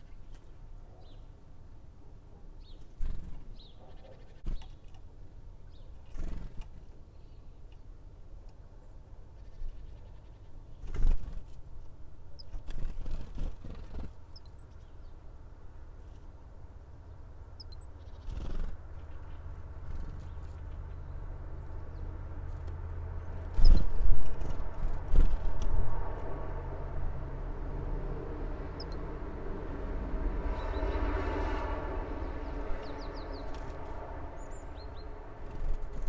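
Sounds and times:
faint high bird chirps: 14.3 - 15.2, 17.6 - 21.2, 28.7 - 29.1
wind gusts on microphone: 23.5 - 36.0.

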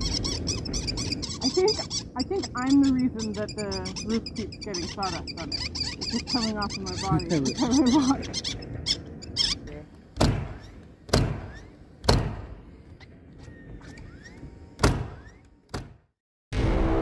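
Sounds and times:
heavy thuds on wooden roof: 10.2 - 12.6, 14.8 - 16.1.

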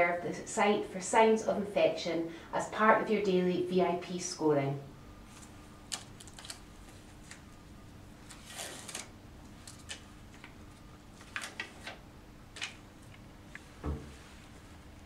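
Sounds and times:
film dressing packet crinkling: 5.9 - 6.6.

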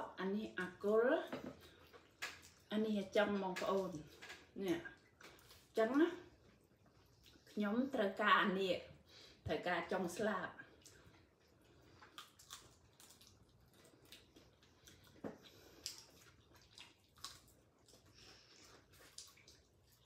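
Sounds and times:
chewing and biting: 10.8 - 20.0
mouth clicks and smacks: 12.0 - 18.1.

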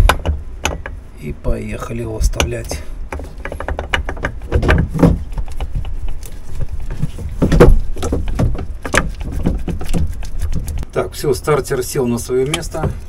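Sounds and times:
metal knocks clunks and scraping: 0.0 - 1.0, 2.1 - 10.9, 12.4 - 13.0.

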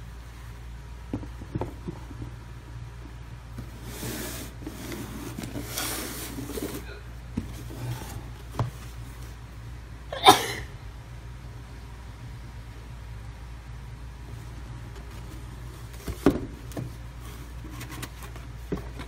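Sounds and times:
low steady hum: 0.0 - 19.0
cardboard rubbing and scraping: 3.6 - 9.4, 15.0 - 19.0.

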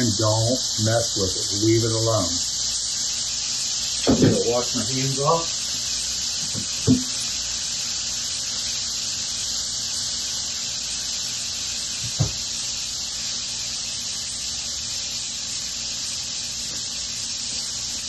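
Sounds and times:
fish sizzling in a skillet: 0.0 - 18.0
dull knock: 6.6 - 7.1, 12.0 - 12.4.

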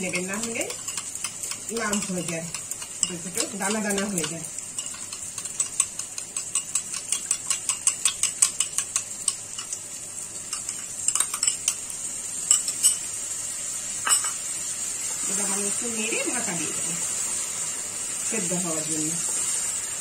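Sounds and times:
utensil beating in ceramic bowl: 0.0 - 9.4
oil sizzling in a wok: 0.0 - 20.0.

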